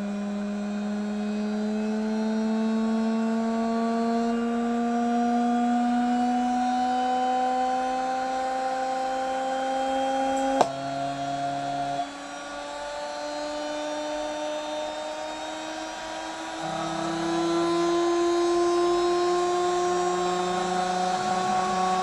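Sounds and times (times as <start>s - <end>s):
drill motor whine: 9.7s - 22.0s.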